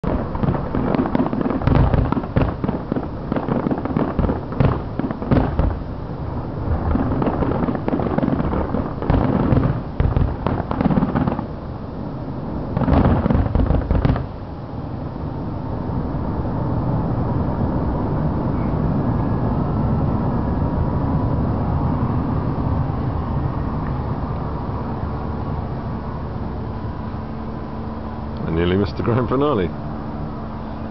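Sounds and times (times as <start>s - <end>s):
fireworks bursting in booms: 0.0s - 6.0s, 6.6s - 11.5s, 12.7s - 14.4s
steady background noise: 0.0s - 30.9s.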